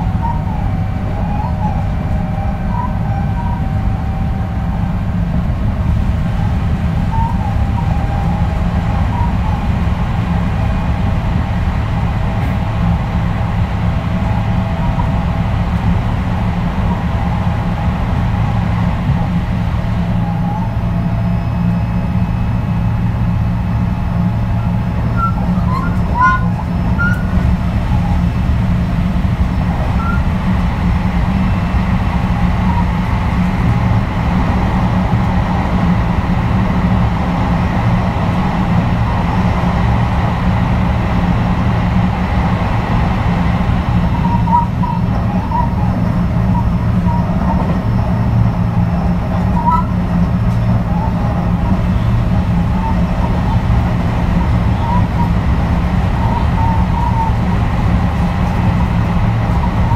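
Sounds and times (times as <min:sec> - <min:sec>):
train wheels rumbling on rails: 0:00.0 - 0:59.9
faint high squeaks: 0:25.1 - 0:28.3, 0:44.1 - 0:48.2.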